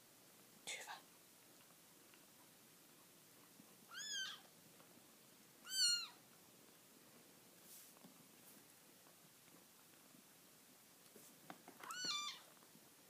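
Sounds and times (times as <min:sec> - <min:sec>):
kitten meowing: 0:03.9 - 0:04.5, 0:05.6 - 0:06.2, 0:11.8 - 0:12.5.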